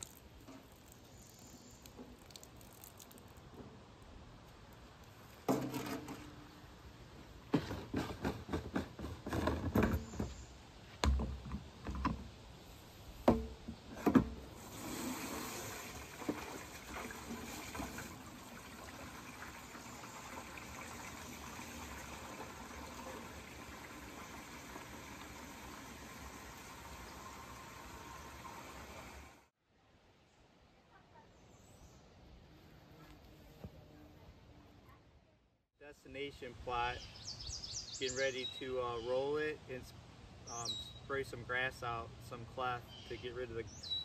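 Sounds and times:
hose knocks and clunks: 5.4s - 6.4s, 7.5s - 10.4s, 11.0s - 12.3s, 13.2s - 15.1s
hose water filling plastic tank: 13.2s - 29.5s.

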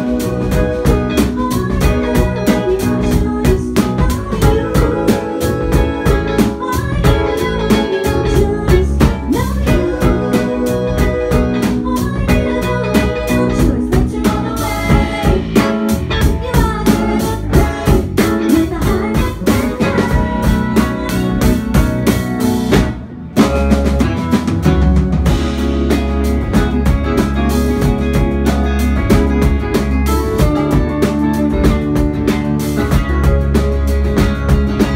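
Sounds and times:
woman singing: 0.0s - 22.8s
bass guitar: 0.0s - 34.9s
drum kit: 0.0s - 34.9s
electric guitar: 0.0s - 34.9s.

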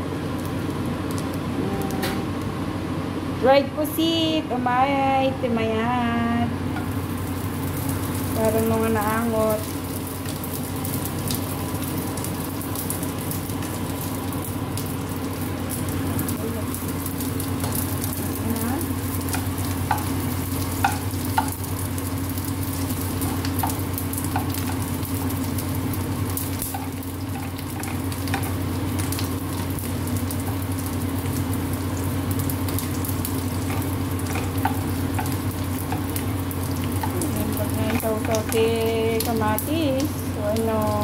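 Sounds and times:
squid sizzling in hot oil: 6.8s - 41.0s.

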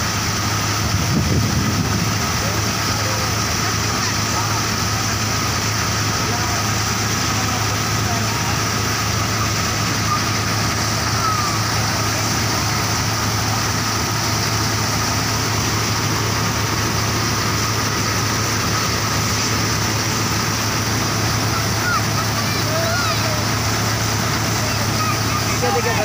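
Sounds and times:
grain thresher running: 0.0s - 26.0s
tractor diesel engine humming: 0.0s - 26.0s.

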